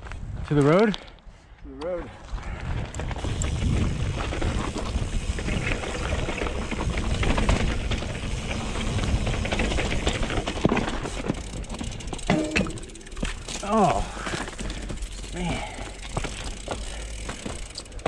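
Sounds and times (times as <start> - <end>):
wind on camera microphone: 2.2 - 9.5
bike tyre noise: 2.2 - 18.0
bike knocking and rattling: 2.8 - 18.0.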